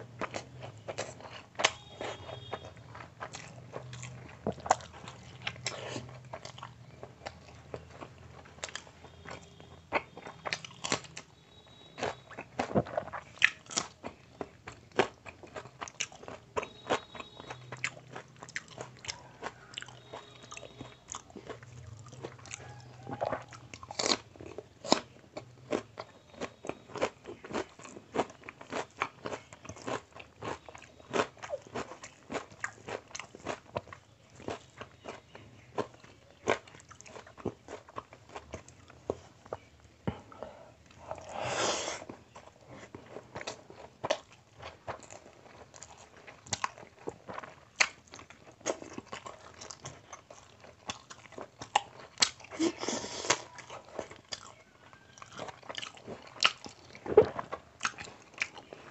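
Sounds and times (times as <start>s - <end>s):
wet chewing and mouth smacks: 0.0s - 41.4s, 42.0s - 58.9s.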